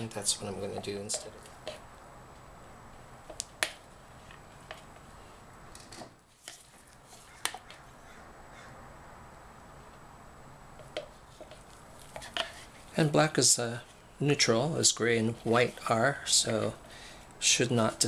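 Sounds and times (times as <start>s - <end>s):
low room hiss: 0.0s - 18.0s
plastic pitchers clicking: 0.4s - 1.8s.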